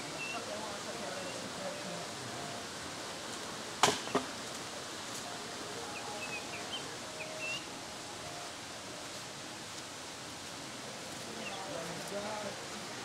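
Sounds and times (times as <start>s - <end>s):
steady outdoor hiss: 0.0s - 13.0s.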